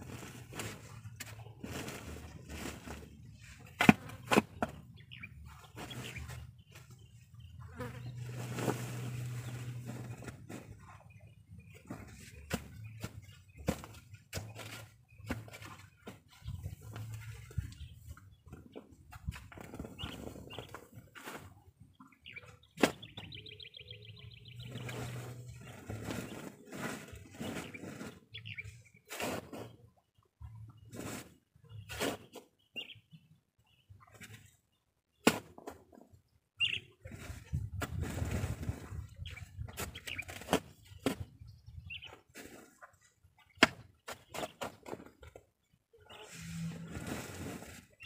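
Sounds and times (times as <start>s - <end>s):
shovel digging in soil: 0.0s - 4.8s, 29.0s - 29.8s, 30.9s - 32.4s
shovel scraping soil: 0.0s - 4.8s, 5.4s - 7.0s, 7.7s - 11.0s, 19.2s - 21.6s, 24.6s - 29.8s, 30.9s - 32.4s, 37.1s - 41.3s, 46.1s - 48.0s.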